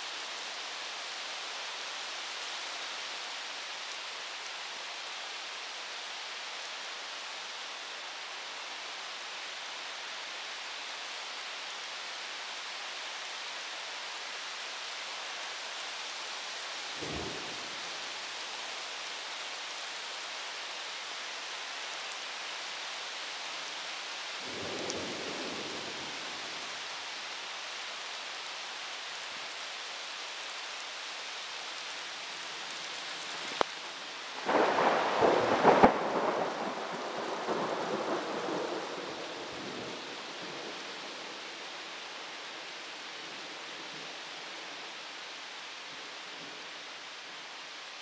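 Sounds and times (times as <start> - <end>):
rain hissing: 16.3 - 48.0.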